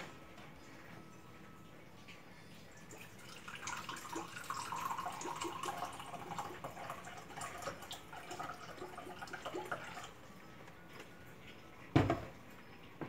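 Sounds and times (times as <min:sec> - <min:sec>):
liquid pouring into glass: 0:02.8 - 0:10.2.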